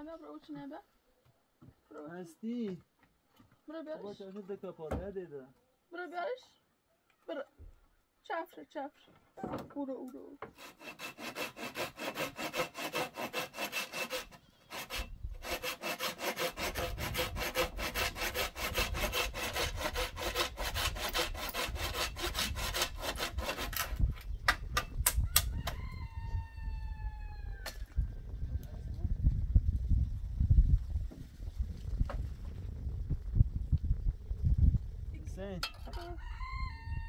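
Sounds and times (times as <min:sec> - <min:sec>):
hand saw cutting wood: 0:10.4 - 0:24.3.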